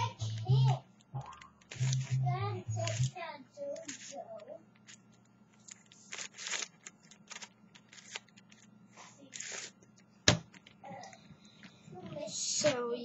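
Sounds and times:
puzzle cube clicking turns: 0.3s - 2.2s, 2.8s - 3.2s.

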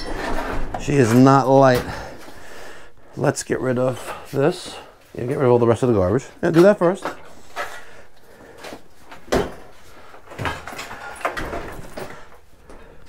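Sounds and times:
objects knocking and clunking: 0.0s - 2.7s, 6.3s - 13.0s.

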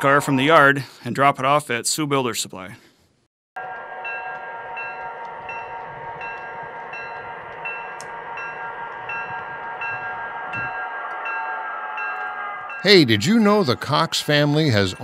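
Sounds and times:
locomotive bell ringing: 3.6s - 15.0s
low rumble: 5.2s - 10.9s.

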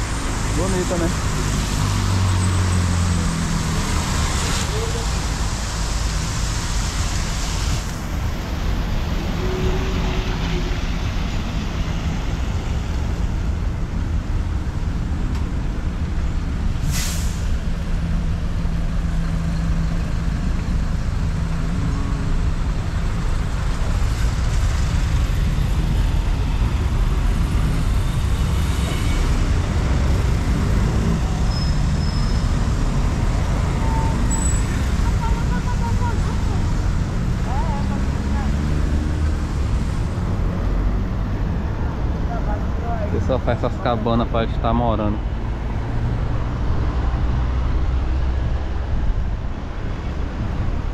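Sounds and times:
street traffic rumble: 0.0s - 50.9s
brief hiss: 16.8s - 17.5s.

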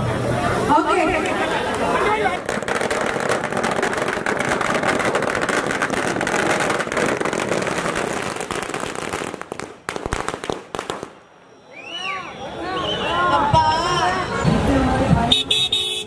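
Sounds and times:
firecrackers popping: 0.9s - 11.3s.

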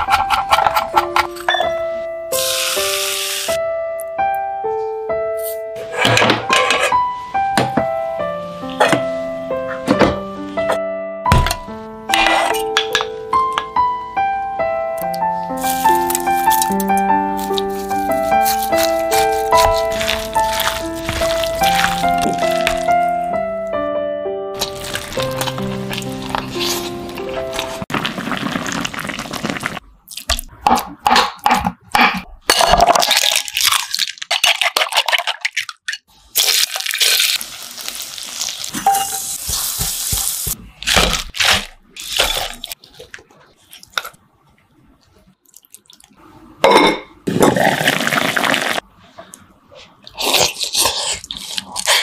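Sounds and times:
utensils clinking on pots: 0.0s - 1.8s, 6.0s - 7.0s, 38.7s - 39.4s
background music: 0.0s - 27.9s
oil sizzling: 2.3s - 3.6s, 24.6s - 29.8s, 36.3s - 42.8s.

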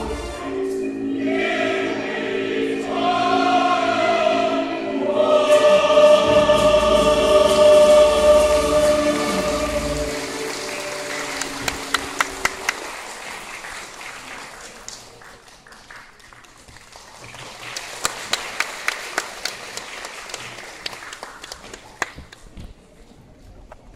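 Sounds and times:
audience applauding: 8.4s - 22.4s.

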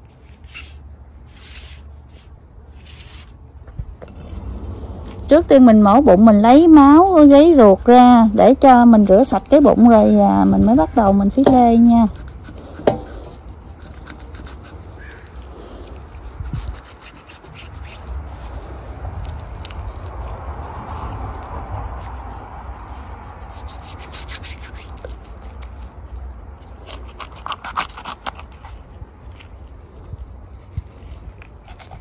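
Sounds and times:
low rumble: 3.4s - 7.3s
knife scraping through fish: 6.9s - 25.8s, 26.7s - 28.8s, 31.3s - 32.0s.

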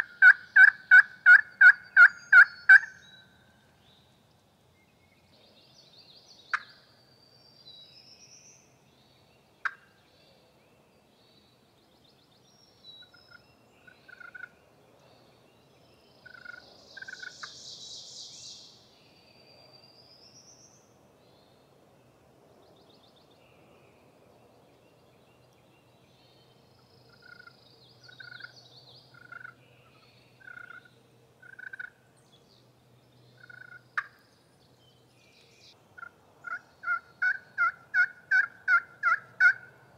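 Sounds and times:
turkey rattling call: 0.0s - 2.9s, 36.0s - 39.7s
turkey yelping: 0.0s - 2.9s, 36.0s - 39.7s.

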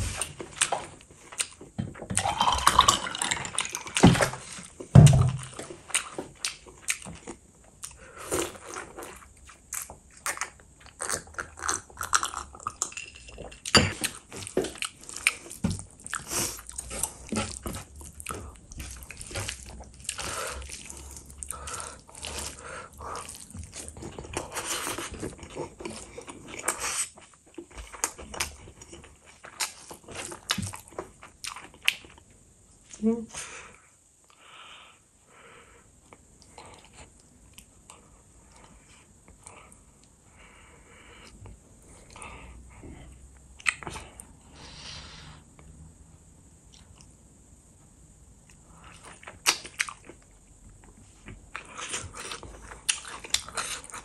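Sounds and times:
wet chewing and lip smacking: 48.4s - 54.0s.

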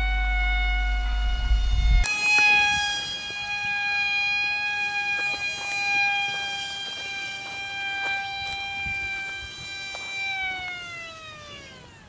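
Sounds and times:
propeller motor whine: 0.0s - 12.0s
wind rumble on microphone: 0.7s - 3.0s, 8.0s - 9.8s.

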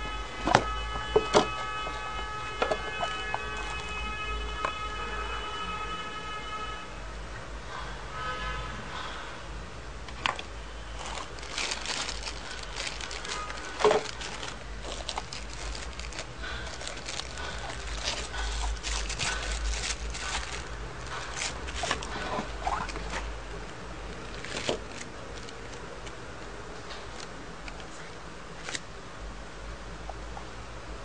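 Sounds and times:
card rustling and scraping: 10.9s - 23.3s.

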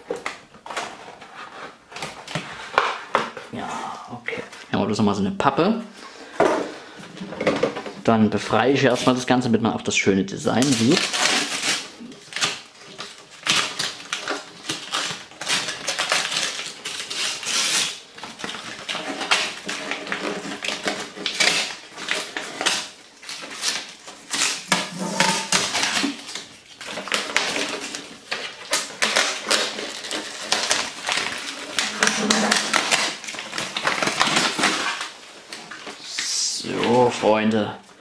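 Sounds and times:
paper rustling and tearing: 8.5s - 9.4s, 10.4s - 37.4s.

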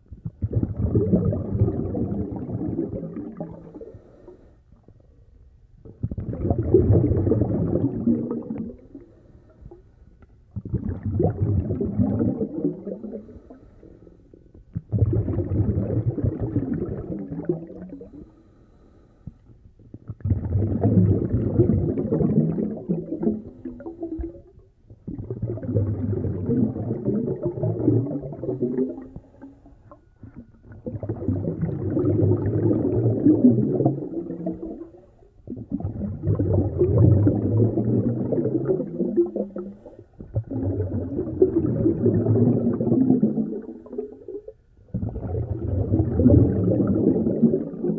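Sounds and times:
muffled breathing through snorkel: 3.5s - 5.1s, 8.8s - 10.2s, 13.0s - 14.4s, 18.0s - 19.7s, 39.5s - 40.3s.

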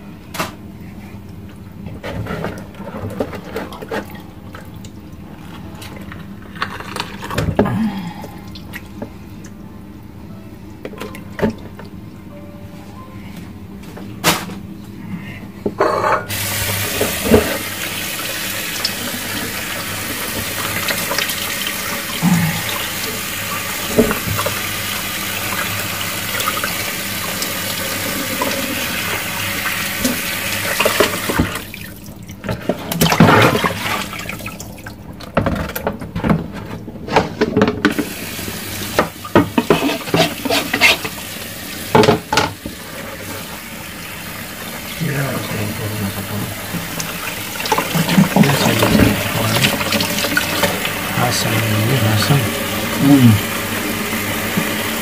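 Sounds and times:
water running from a tap: 16.3s - 35.0s, 37.9s - 55.0s
knocks and splashes in water: 31.3s - 35.7s.

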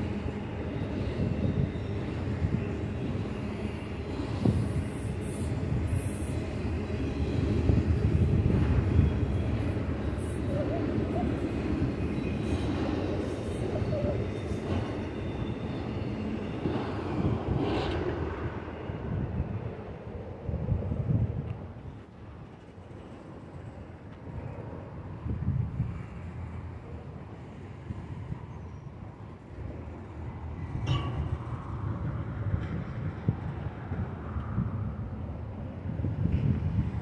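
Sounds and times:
train wheels rumbling on rail: 0.0s - 37.0s
faint wheel squeals: 8.9s - 17.0s.

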